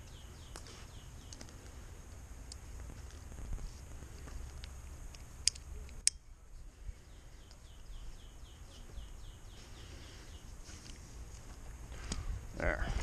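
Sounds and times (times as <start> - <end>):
climbing hardware clicking: 4.3 - 6.2.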